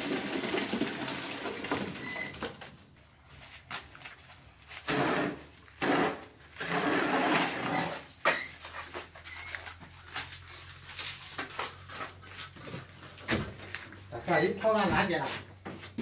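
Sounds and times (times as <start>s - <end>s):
bucket scraping wet mortar: 0.0s - 2.7s, 4.6s - 14.4s.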